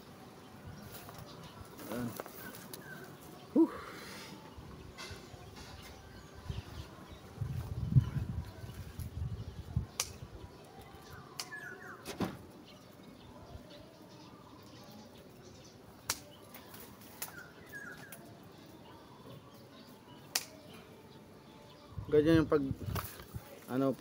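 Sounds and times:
plant rustling: 0:00.8 - 0:03.5, 0:22.8 - 0:24.0
bird chirps: 0:00.8 - 0:22.2
stems snapping: 0:01.8 - 0:03.3, 0:09.9 - 0:11.7, 0:16.0 - 0:18.3, 0:20.3 - 0:20.7, 0:22.9 - 0:23.3.

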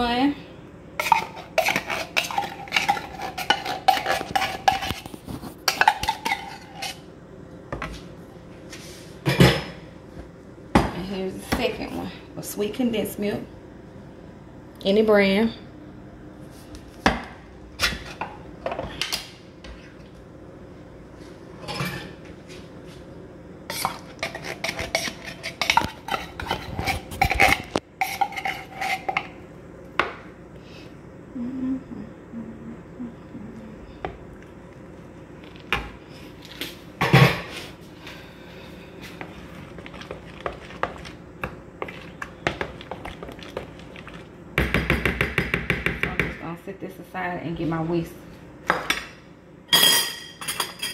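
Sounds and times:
utensil clinking and scraping bowl: 0:01.0 - 0:07.1, 0:23.7 - 0:29.4, 0:39.0 - 0:44.3, 0:49.7 - 0:50.9.

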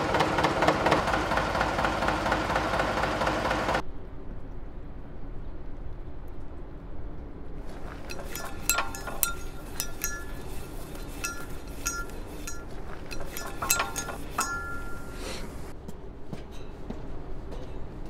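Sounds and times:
metal valve clinking and rattling: 0:07.6 - 0:15.7.

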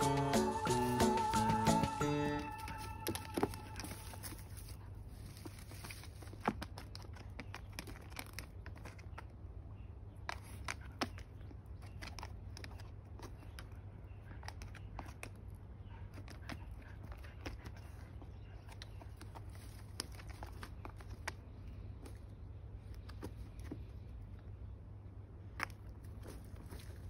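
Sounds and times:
dogs clicking and rustling: 0:02.7 - 0:09.3, 0:10.2 - 0:22.2.

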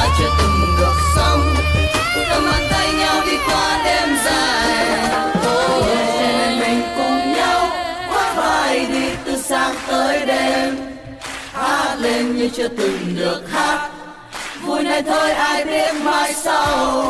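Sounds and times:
song with sung vocals: 0:00.0 - 0:17.0.

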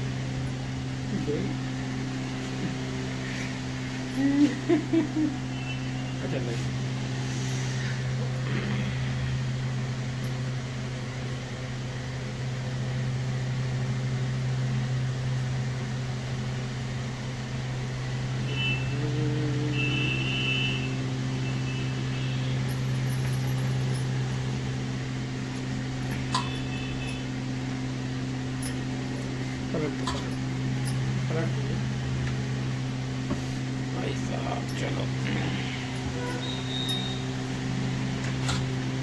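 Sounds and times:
electric motor hum: 0:00.0 - 0:39.0.

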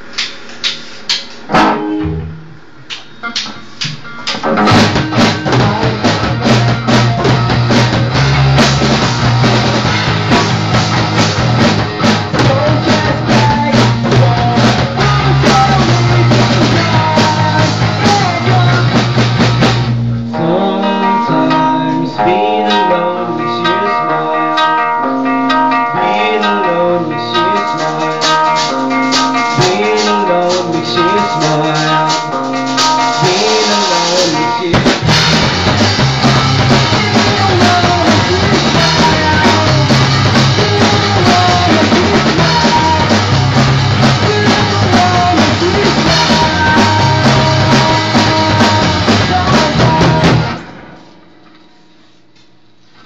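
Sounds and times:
punk rock band playing: 0:01.4 - 0:51.2
male singer: 0:05.1 - 0:06.8, 0:12.3 - 0:19.1, 0:20.3 - 0:25.1, 0:25.8 - 0:28.7, 0:29.4 - 0:35.0, 0:36.7 - 0:50.6.

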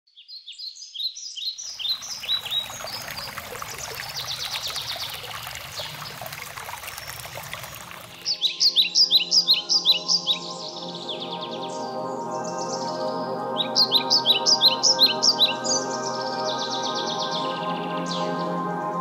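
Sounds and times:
small birds chirping: 0:00.1 - 0:10.4
water trickling over stones: 0:01.6 - 0:08.4
soft sustained music chords: 0:01.9 - 0:19.0.

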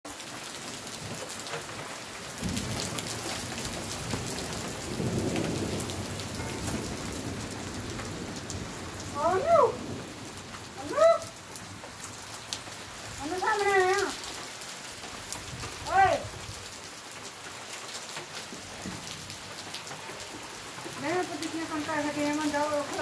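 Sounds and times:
rain falling: 0:00.1 - 0:23.0
thunder rumbling: 0:02.4 - 0:14.3, 0:20.9 - 0:23.0.

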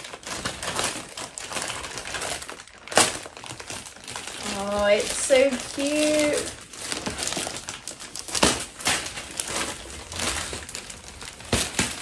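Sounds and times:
plastic mailer bag crinkling: 0:00.0 - 0:12.0.

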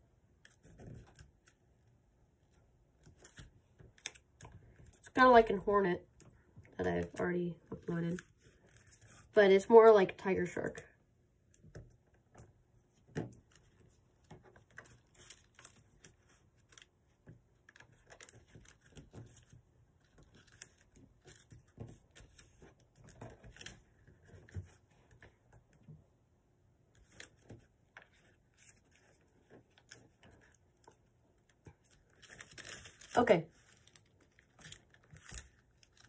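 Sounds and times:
paper crinkling: 0:08.0 - 0:09.4, 0:13.4 - 0:25.2, 0:27.0 - 0:36.0.

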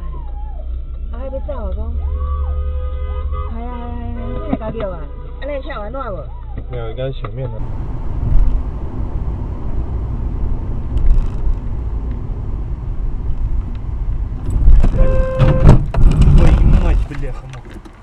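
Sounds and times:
car road and engine rumble: 0:00.0 - 0:18.0
car horn: 0:02.1 - 0:05.7, 0:14.5 - 0:15.9.

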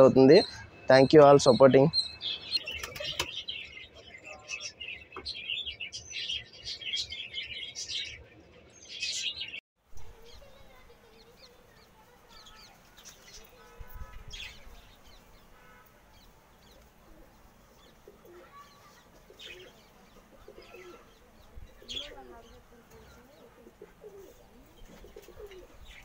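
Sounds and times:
small birds chirping: 0:00.0 - 0:26.0
pigeons cooing: 0:02.4 - 0:03.7, 0:16.6 - 0:26.0.

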